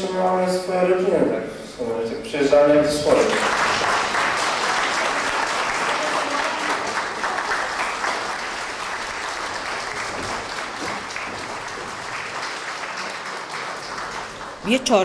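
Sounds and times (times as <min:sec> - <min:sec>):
audience applauding: 0:03.1 - 0:15.0.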